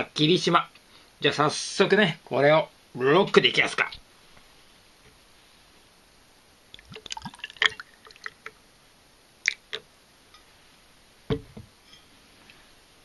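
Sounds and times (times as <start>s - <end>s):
liquid glugging over ice: 6.8s - 8.6s.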